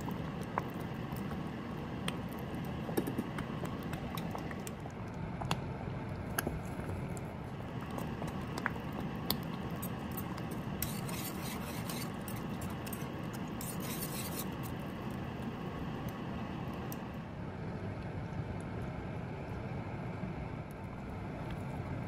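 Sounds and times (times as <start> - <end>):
congee bubbling in a pot: 0.0 - 22.0
utensil scraping pot: 7.8 - 14.8.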